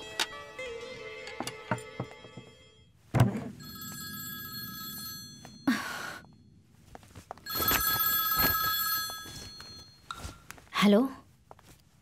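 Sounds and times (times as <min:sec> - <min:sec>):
phone ringing: 0:03.5 - 0:06.6, 0:07.3 - 0:10.4.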